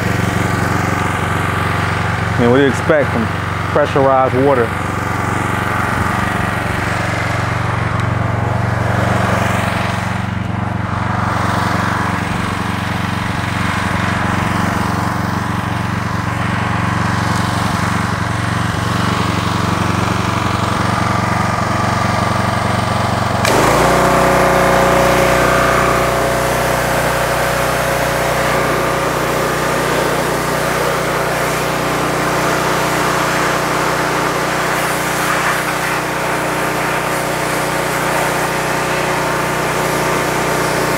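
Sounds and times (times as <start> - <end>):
pressure washer engine running: 0.0 - 40.9
high-pressure water jet hissing: 23.4 - 40.9.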